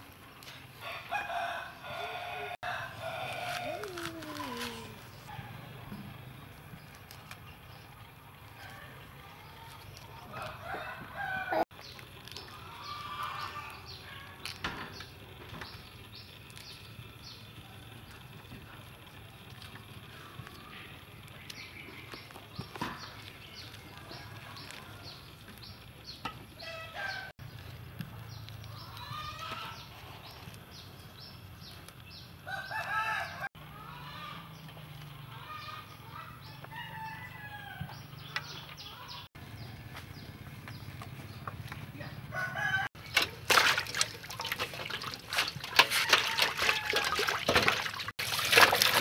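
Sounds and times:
roosters crowing: 0.6s - 5.6s, 8.4s - 11.8s, 12.5s - 14.4s, 22.6s - 25.8s, 26.5s - 27.4s, 28.7s - 30.8s, 32.4s - 39.6s, 41.3s - 43.2s, 43.8s - 49.0s.

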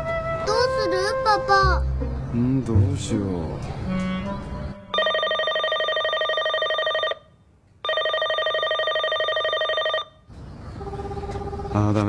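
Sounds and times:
electronic telephone ringing: 4.9s - 10.2s.

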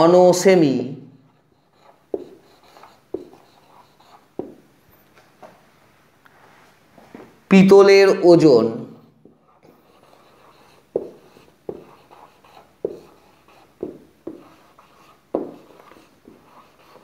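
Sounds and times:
marker writing on whiteboard: 1.2s - 5.0s, 9.2s - 17.0s.

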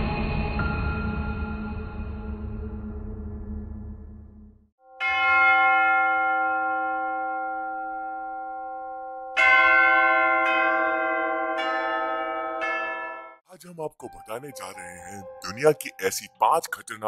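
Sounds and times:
low dark intro music: 0.0s - 4.7s
large bell struck and ringing: 5.0s - 13.4s.

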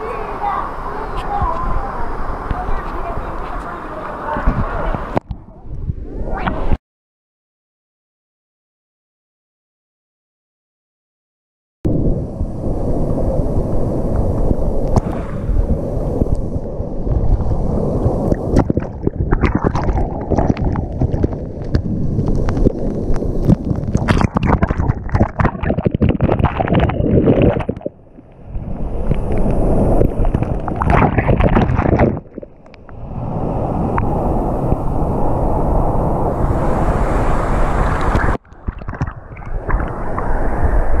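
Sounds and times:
water splashing against camera: 0.0s - 6.8s, 14.1s - 35.0s, 36.5s - 41.0s
underwater bubbles: 11.9s - 41.0s.

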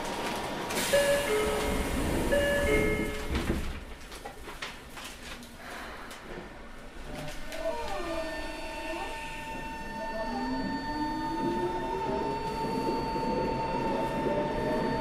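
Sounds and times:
low train rumble: 0.0s - 4.9s.

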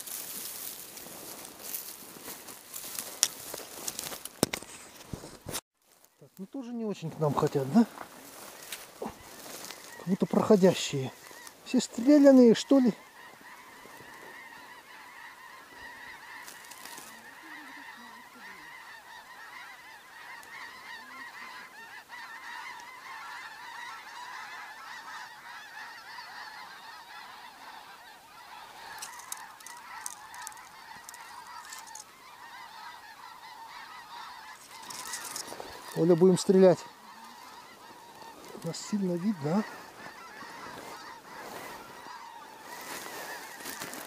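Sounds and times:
geese honking: 0.0s - 4.8s, 6.2s - 44.0s.

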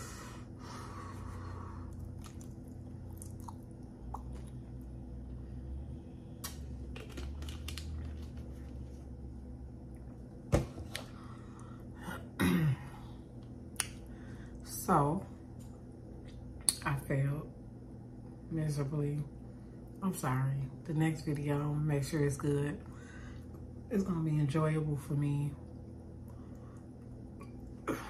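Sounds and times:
low steady hum: 0.0s - 28.0s
drinking and swallowing: 1.9s - 4.9s.

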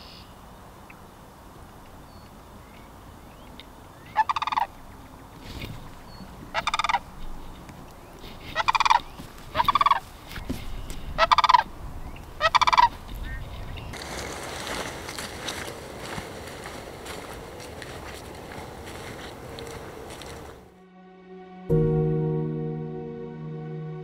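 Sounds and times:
crane rattling calls: 4.1s - 5.0s, 6.5s - 7.1s, 8.5s - 10.0s, 11.2s - 11.7s, 12.4s - 13.0s.

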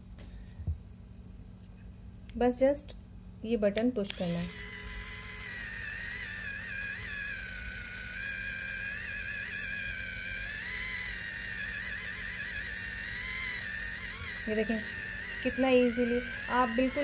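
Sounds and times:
small electric motor whining: 4.1s - 17.0s.

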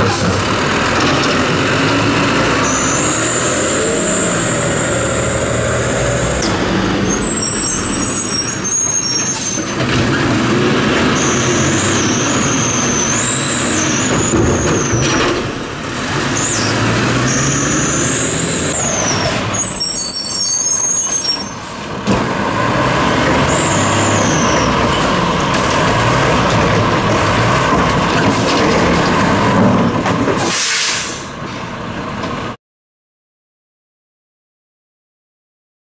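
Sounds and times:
diesel truck engine running: 0.0s - 20.0s, 21.7s - 30.0s
high gliding squeals: 1.8s - 9.8s, 16.3s - 21.6s, 23.4s - 26.1s
air brake hiss: 30.4s - 31.4s.

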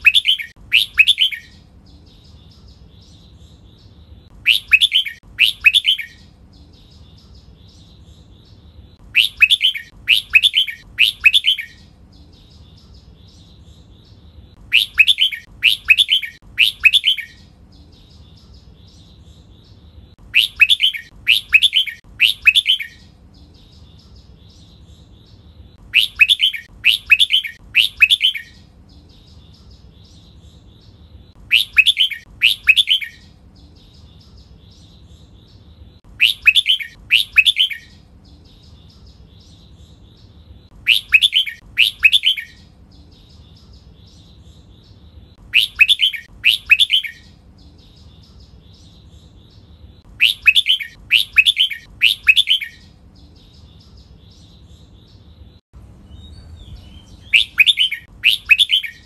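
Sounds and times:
bird whistled song phrases: 0.0s - 1.6s, 4.4s - 6.3s, 9.1s - 11.9s, 14.7s - 17.5s, 20.2s - 23.1s, 25.9s - 29.4s, 31.4s - 33.4s, 36.1s - 38.0s, 40.8s - 42.7s, 45.5s - 47.4s, 50.1s - 52.9s, 56.1s - 59.0s.

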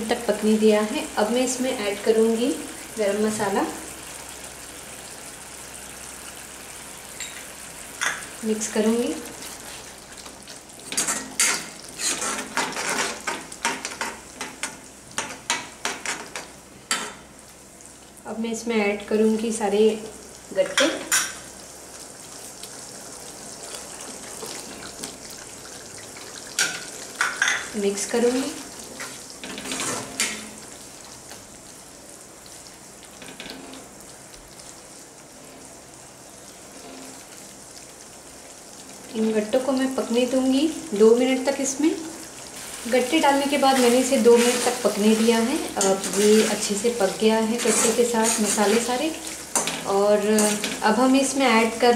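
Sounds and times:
gravy sizzling: 0.0s - 51.9s
metal spoon scraping pan: 10.9s - 13.2s, 43.7s - 46.8s, 47.5s - 50.8s.

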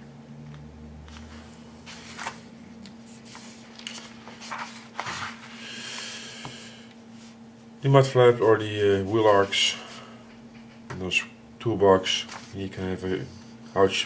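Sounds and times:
paper rustling and crackling: 1.1s - 5.5s, 12.2s - 12.6s.

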